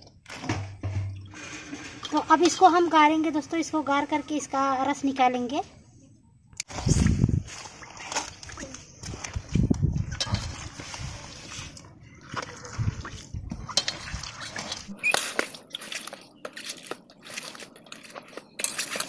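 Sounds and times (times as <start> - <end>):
flowers squelching by hand: 10.1 - 19.0.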